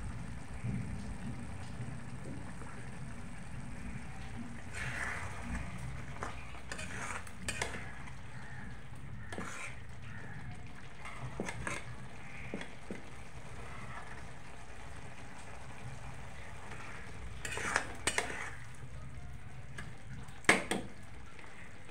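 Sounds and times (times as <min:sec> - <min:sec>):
gravy sizzling: 0:00.0 - 0:21.9
metal spatula scraping pan: 0:04.6 - 0:10.0, 0:11.0 - 0:12.7, 0:16.7 - 0:18.6.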